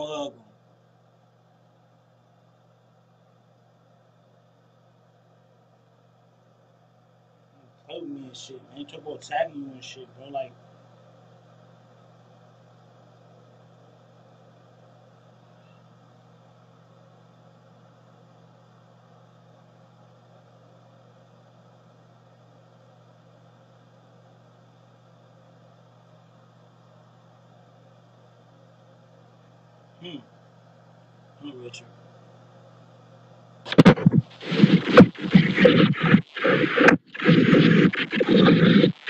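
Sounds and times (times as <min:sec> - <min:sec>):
low hum: 0:33.6 - 0:39.0.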